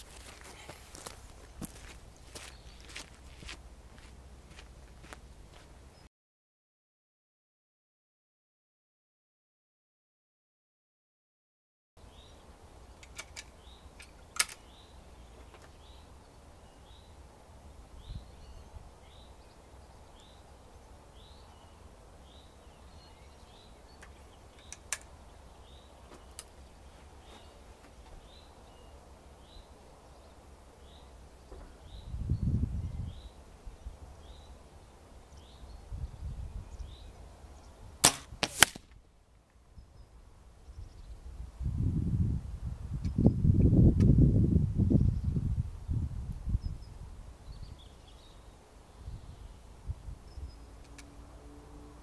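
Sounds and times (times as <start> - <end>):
air rifle cracks: 38.0 - 39.0.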